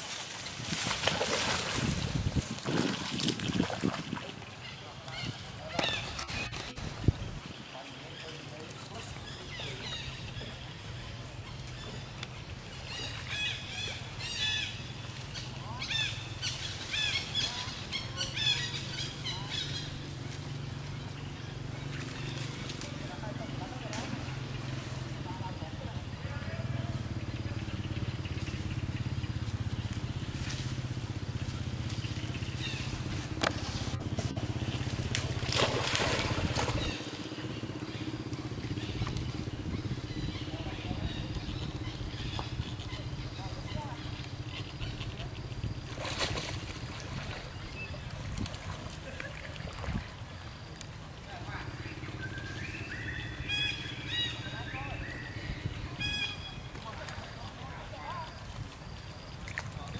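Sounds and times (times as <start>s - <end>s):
water splashing: 0.0s - 7.0s, 29.5s - 41.6s, 42.2s - 52.7s.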